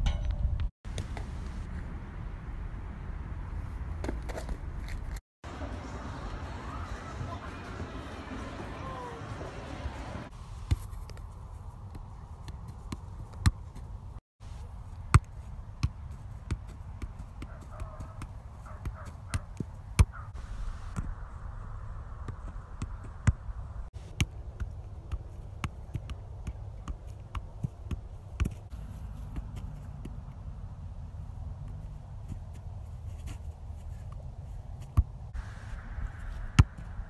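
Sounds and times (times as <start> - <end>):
steady low rumble: 20.1 - 24.1, 28.7 - 37.0.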